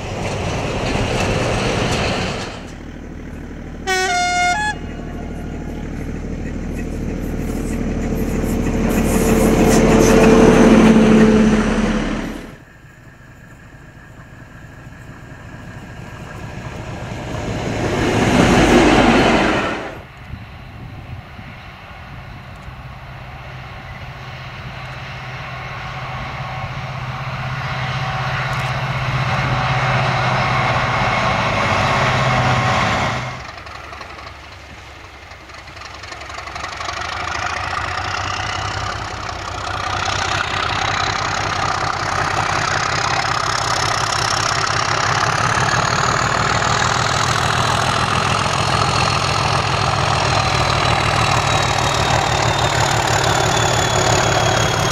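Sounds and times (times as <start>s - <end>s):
locomotive engine drone: 0.0s - 54.9s
train passing at speed: 0.0s - 54.9s.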